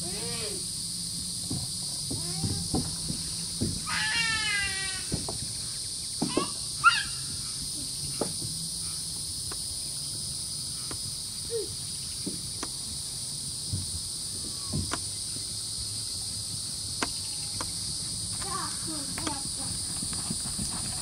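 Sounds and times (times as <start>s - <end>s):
insects trilling: 0.0s - 21.0s.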